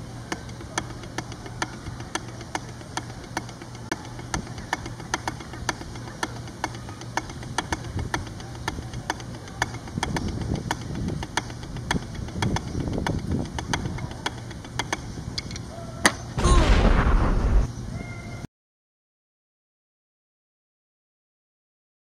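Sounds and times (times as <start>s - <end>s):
drumsticks striking practice pad: 0.0s - 17.0s
low hum: 16.4s - 18.1s.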